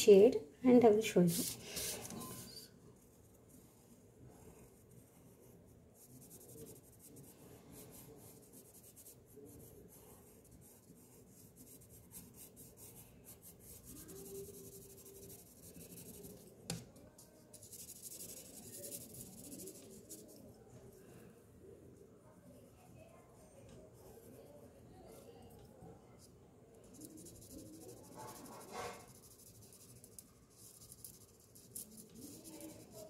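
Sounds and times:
pencil scratching on paper: 0:01.3 - 0:02.5, 0:04.3 - 0:16.6, 0:17.2 - 0:20.5, 0:26.8 - 0:33.0.

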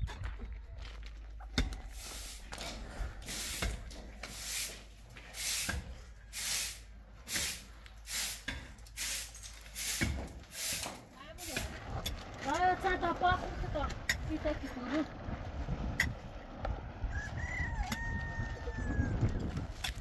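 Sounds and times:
steady hiss: 0:01.9 - 0:02.5, 0:03.2 - 0:11.6.

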